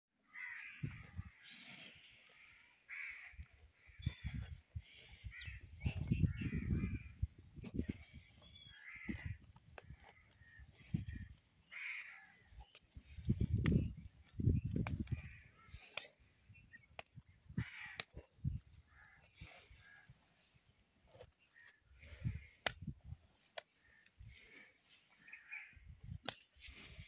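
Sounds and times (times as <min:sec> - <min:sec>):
birds cawing: 0:00.2 - 0:07.2, 0:08.0 - 0:12.8, 0:15.0 - 0:16.2, 0:17.6 - 0:18.1, 0:18.9 - 0:20.1, 0:23.8 - 0:25.9
buffaloes crunching fodder: 0:07.1 - 0:17.0.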